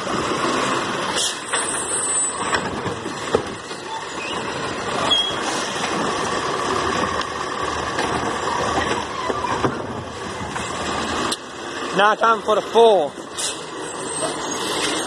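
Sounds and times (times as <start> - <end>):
garbage truck diesel engine: 0.0 - 15.0.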